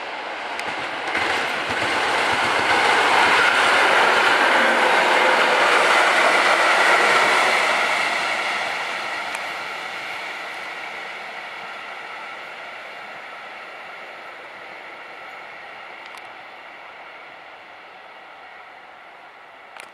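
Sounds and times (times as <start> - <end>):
train running on rails: 0.0 - 19.9
faint click: 16.0 - 16.4.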